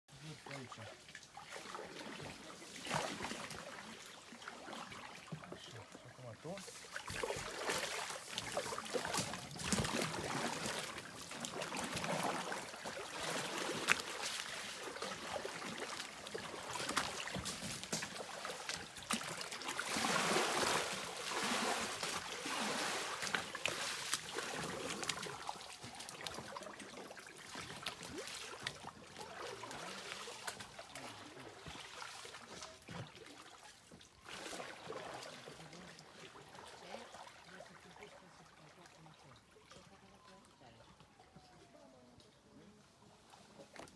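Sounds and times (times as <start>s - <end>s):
paddle strokes splashing: 0.1s - 40.1s
river current rushing: 7.4s - 25.6s.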